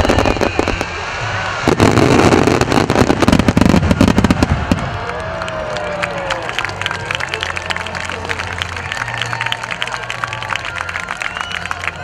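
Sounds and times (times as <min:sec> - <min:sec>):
firework booms and cracks: 0:00.0 - 0:05.2
firework crackles: 0:00.0 - 0:12.0.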